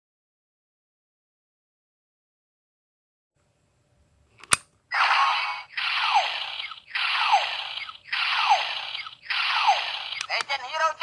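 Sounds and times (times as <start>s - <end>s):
toy hissing burst falling tone: 4.9s - 10.3s
toy piece clicking in: 10.2s - 10.5s.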